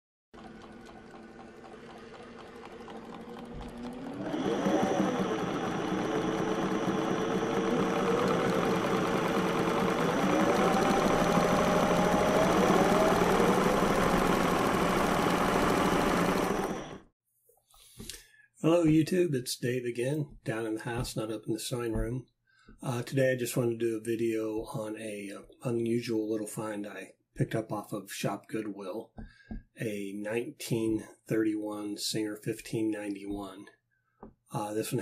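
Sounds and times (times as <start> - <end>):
motor running and speeding up: 0.4 - 17.1.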